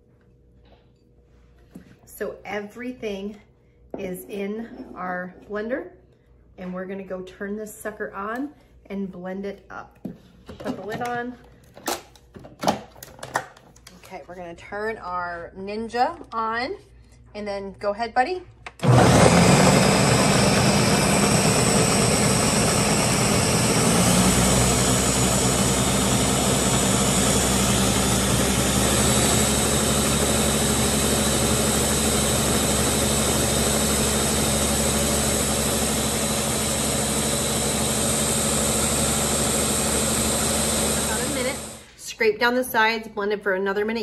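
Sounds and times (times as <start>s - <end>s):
blender whirring: 18.7s - 41.9s.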